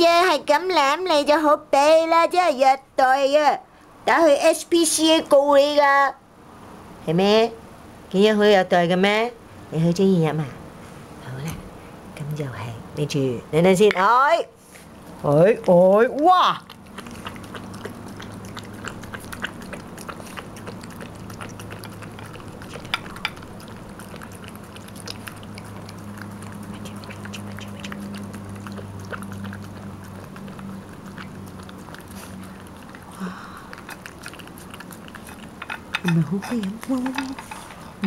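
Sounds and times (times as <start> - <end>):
low steady hum: 0.0 - 38.0
cat lapping from a dish: 16.6 - 37.8.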